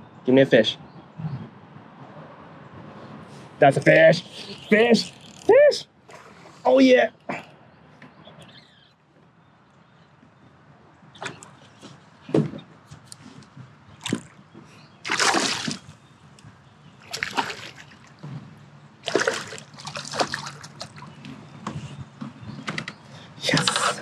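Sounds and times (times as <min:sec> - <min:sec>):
fish splashing in water: 0:15.0 - 0:15.9, 0:17.0 - 0:18.2, 0:19.0 - 0:21.2.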